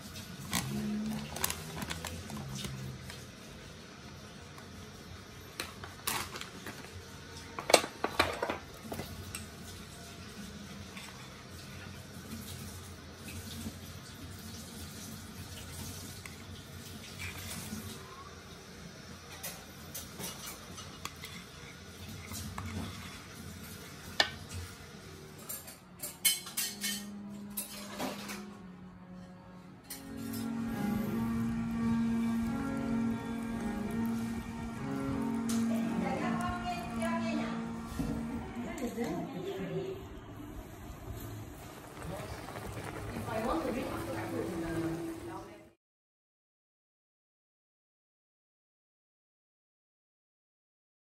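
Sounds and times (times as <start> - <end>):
metal utensils clinking on dishes: 25.4 - 28.5.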